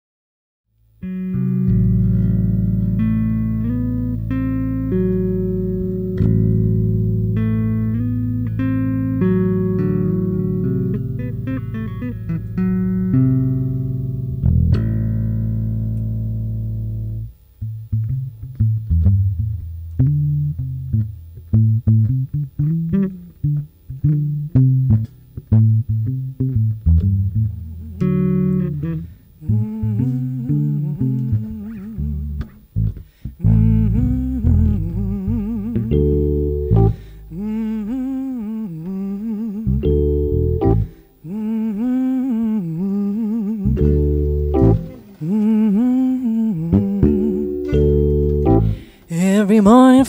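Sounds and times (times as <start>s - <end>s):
plucked bass line: 1.0s - 41.0s, 43.4s - 50.0s
keyboard chords: 34.8s - 38.1s, 39.8s - 41.3s, 43.7s - 50.0s
wavering melody line: 46.8s - 50.0s.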